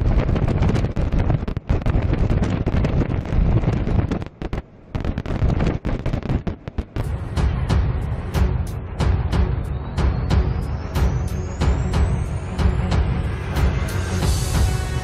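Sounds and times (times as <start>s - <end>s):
storm wind buffeting microphone: 0.0s - 8.5s.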